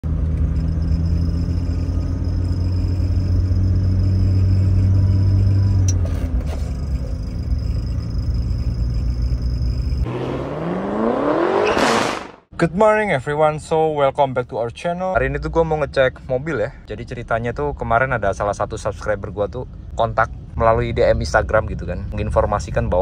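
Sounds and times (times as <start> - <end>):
car engine drone from inside cabin: 0.0 - 11.7
rising whoosh sound effect: 10.0 - 12.5.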